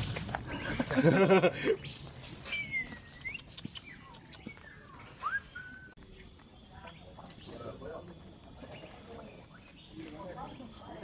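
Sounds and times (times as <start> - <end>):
birds whistling: 1.7 - 7.8.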